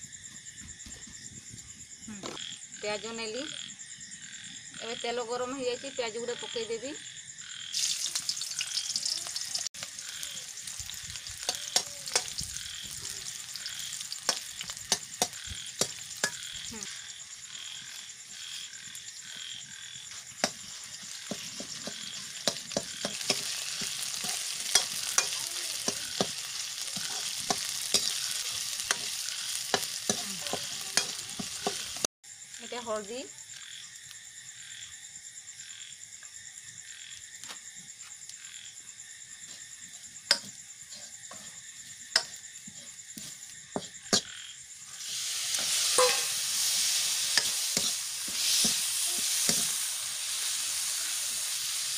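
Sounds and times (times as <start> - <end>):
onions sizzling in hot oil: 7.7 - 32.1, 39.0 - 51.9
metal ladle scraping pan: 45.5 - 49.8.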